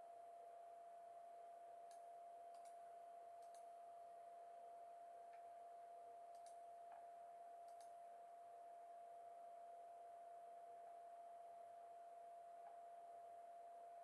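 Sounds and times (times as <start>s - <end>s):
faint steady tone: 0.0s - 14.0s
faint ticks: 1.9s - 2.8s, 3.4s - 3.7s, 6.3s - 8.0s.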